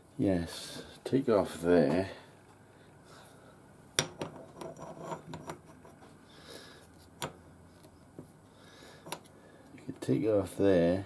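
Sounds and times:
metal scrapes: 4.4 - 6.1.

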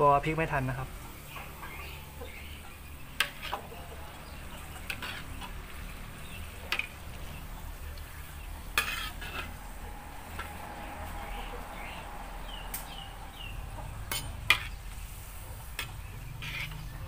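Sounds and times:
dough sizzling in oil: 1.0 - 17.0
metal spatula scraping wok: 3.1 - 7.1, 8.2 - 12.2, 14.0 - 17.0.

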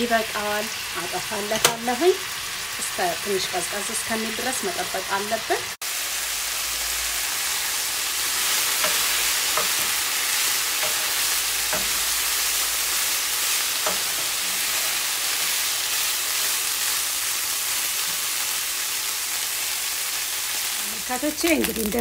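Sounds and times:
meat sizzling in oil: 0.0 - 22.0.

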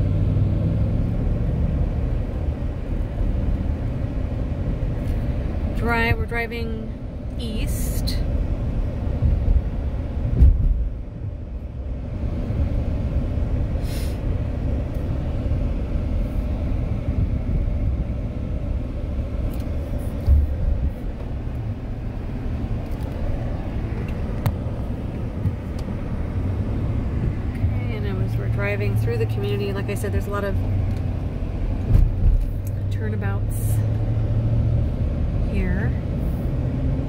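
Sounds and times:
car interior rumble: 0.0 - 37.0
low thumps: 9.2 - 11.2.

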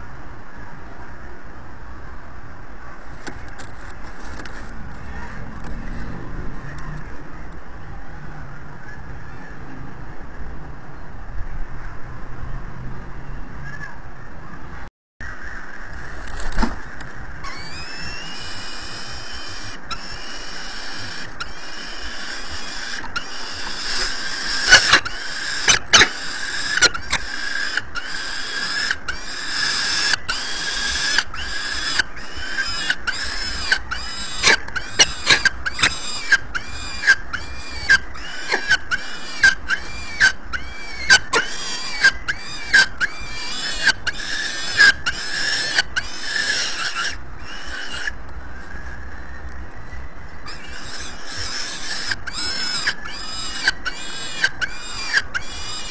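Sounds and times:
falcon chick begging calls: 15.5 - 49.4, 50.0 - 55.9.

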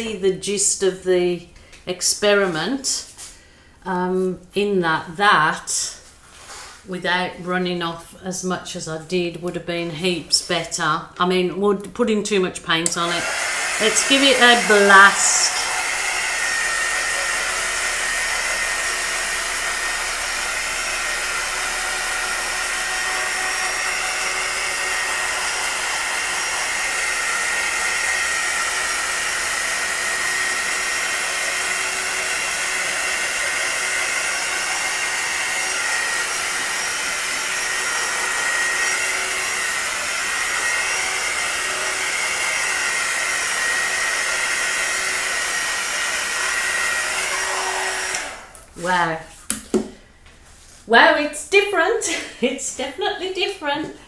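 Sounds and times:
heat gun blowing air: 12.8 - 49.9.

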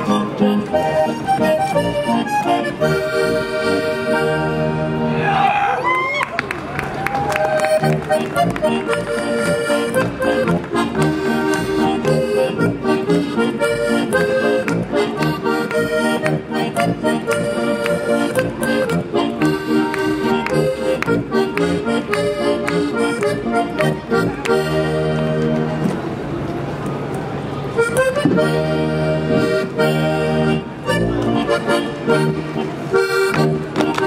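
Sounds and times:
accordion folk dance music: 0.0 - 5.2, 7.5 - 26.3, 27.7 - 34.0.

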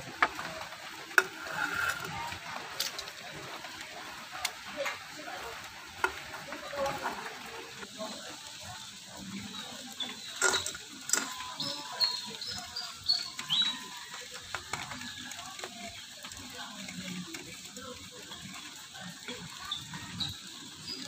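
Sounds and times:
knife blade scraping wood and can: 1.2 - 2.3.

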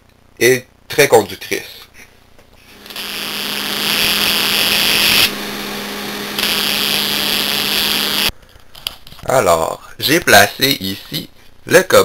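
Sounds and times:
electrical arc sizzling hiss: 2.6 - 8.3
electrical buzz: 2.6 - 8.3.

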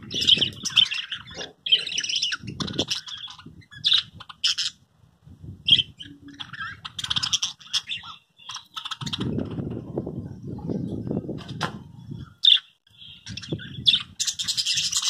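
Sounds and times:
budgerigars chirping and warbling: 0.0 - 4.8, 5.6 - 9.5, 12.2 - 15.0.

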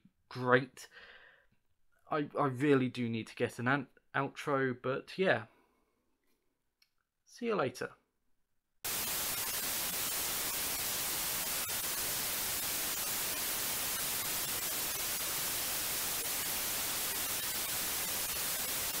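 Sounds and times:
television static hiss: 8.9 - 19.0.

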